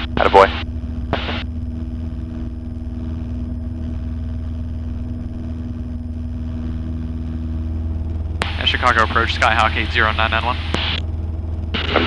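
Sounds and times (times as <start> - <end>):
propeller plane engine droning: 0.0 - 12.0.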